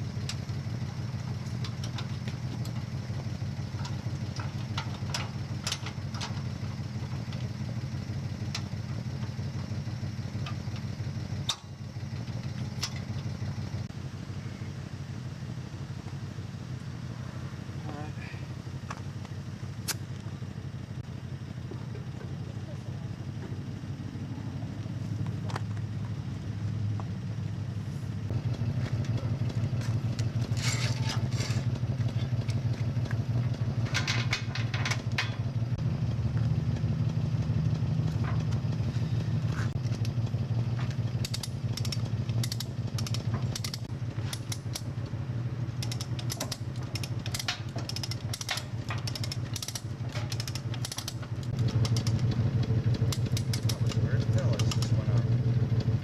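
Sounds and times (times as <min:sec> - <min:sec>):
vehicle engine idling: 0:00.0 - 0:56.0
metallic clinks and rattles: 0:30.2 - 0:32.7, 0:33.8 - 0:35.5, 0:45.8 - 0:52.3.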